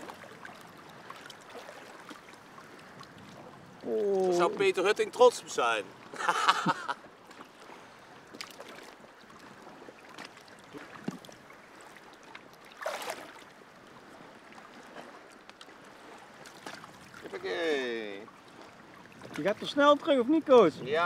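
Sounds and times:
lake water lapping and sloshing: 0:00.0 - 0:21.0
short water splash: 0:12.6 - 0:13.5, 0:16.0 - 0:19.6.

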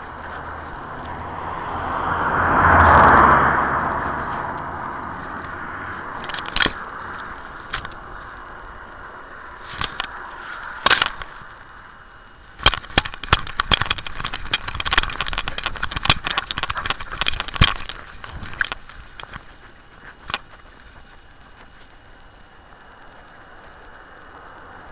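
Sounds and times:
camera rubbing and knocking: 0:03.9 - 0:08.0, 0:09.6 - 0:11.5, 0:12.6 - 0:22.0
clicks and rattles: 0:06.1 - 0:08.5, 0:09.6 - 0:11.5, 0:12.6 - 0:22.0.

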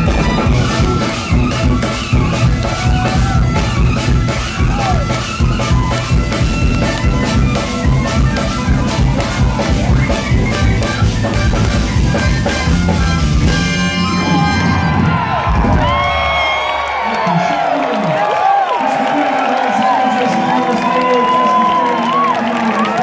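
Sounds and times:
jazz fusion band playing: 0:00.0 - 0:16.0
driving drum beat: 0:00.0 - 0:16.6.

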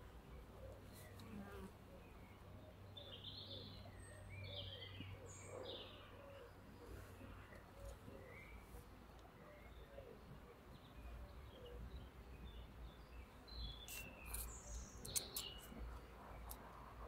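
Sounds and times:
high bird chirps: 0:13.6 - 0:16.6
sharp clicks: 0:13.9 - 0:15.8.

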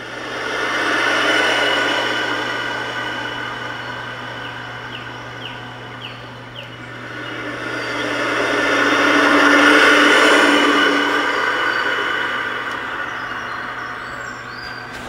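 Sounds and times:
vehicle rushing sound: 0:06.8 - 0:15.0.

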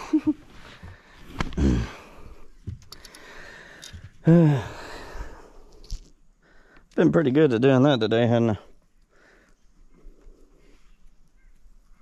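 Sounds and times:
man sighing: 0:01.4 - 0:02.4, 0:03.2 - 0:05.5.

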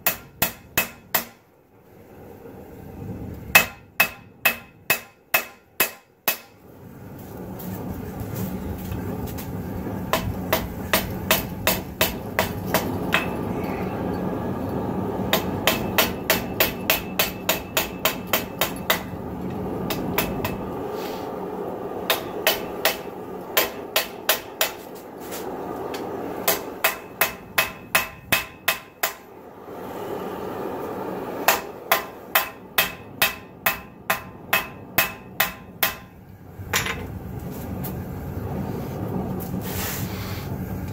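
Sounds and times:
hammer striking steel on anvil: 0:00.0 - 0:01.4, 0:03.6 - 0:06.6, 0:10.1 - 0:13.5, 0:15.3 - 0:19.1, 0:19.9 - 0:20.6, 0:22.1 - 0:24.8, 0:26.4 - 0:29.3, 0:31.4 - 0:36.2
steady rushing noise: 0:00.0 - 0:40.9.

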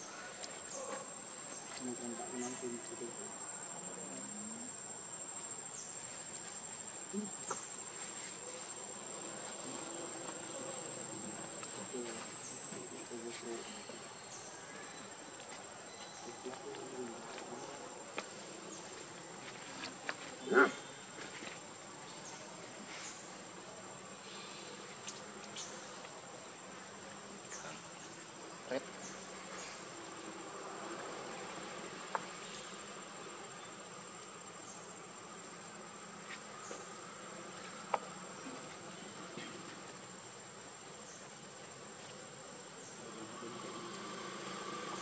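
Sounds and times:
insects droning: 0:00.0 - 0:45.0
faint ticks and rustles: 0:00.3 - 0:03.1, 0:05.4 - 0:14.4, 0:15.3 - 0:23.6, 0:24.3 - 0:26.3, 0:30.9 - 0:43.0.

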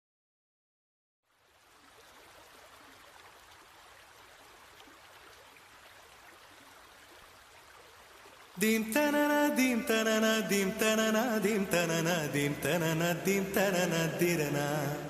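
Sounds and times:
flowing river water: 0:01.2 - 0:15.0.

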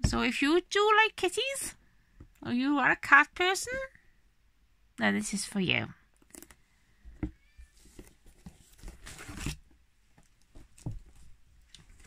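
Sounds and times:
cardboard rustle: 0:07.7 - 0:12.0.

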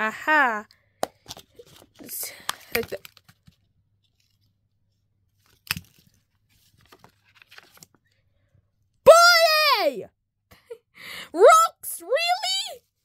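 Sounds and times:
crumpled paper crackling: 0:01.3 - 0:04.5, 0:05.4 - 0:08.1.

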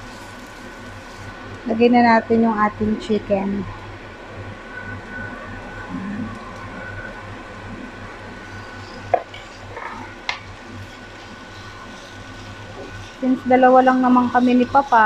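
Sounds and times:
chicken sizzling in oil: 0:00.0 - 0:01.6
exhaust fan hum: 0:00.0 - 0:15.0.

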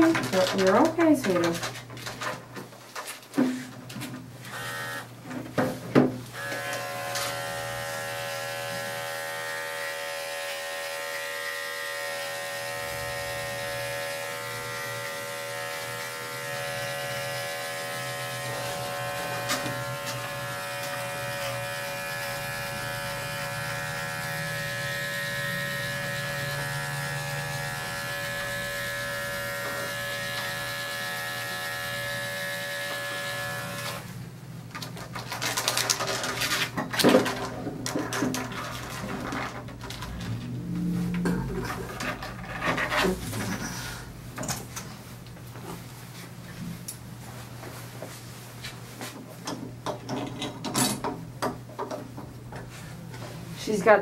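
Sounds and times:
electric clipper buzzing: 0:04.4 - 0:05.2, 0:06.3 - 0:34.2.

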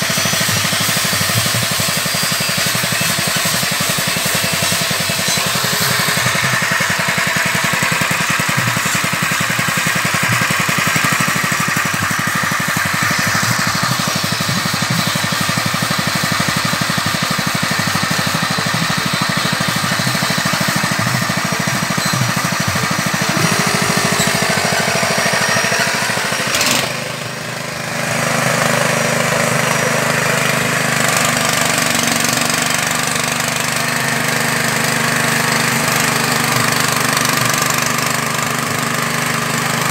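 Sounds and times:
small engine running: 0:00.0 - 0:39.9.

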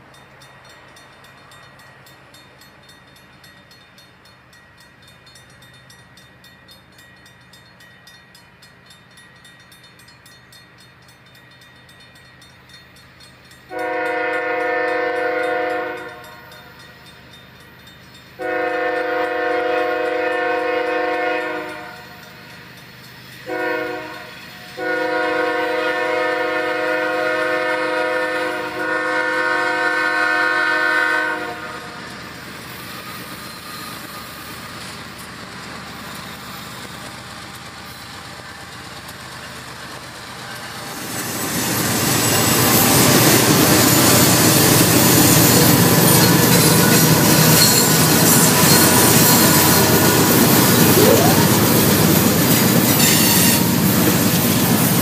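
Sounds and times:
crossing bell ringing: 0:00.0 - 0:25.0, 0:40.4 - 0:55.0
diesel locomotive rumble: 0:00.0 - 0:55.0
locomotive air horn blasts: 0:13.7 - 0:16.7, 0:18.4 - 0:22.1, 0:23.5 - 0:32.0, 0:53.0 - 0:53.7.

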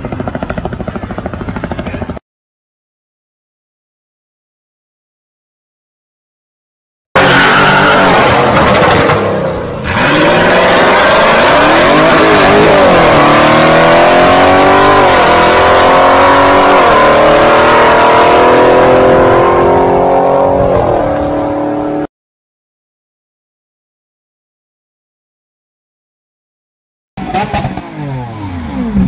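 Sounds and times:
car engine accelerating hard: 0:07.2 - 0:22.1, 0:27.2 - 0:29.0.

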